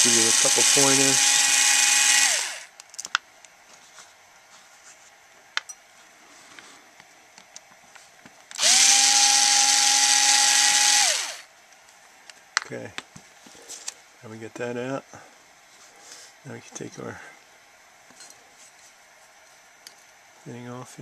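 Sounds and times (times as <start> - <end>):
cordless drill motor whining: 0.0 - 2.8, 8.5 - 11.5.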